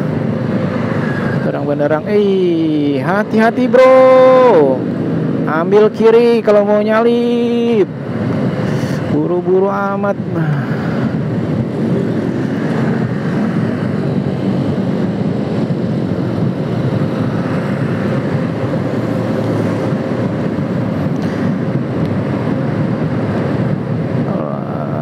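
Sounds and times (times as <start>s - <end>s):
motorcycle engine: 0.0s - 6.4s, 10.9s - 25.0s
road noise: 0.0s - 25.0s
wind on microphone: 7.4s - 25.0s.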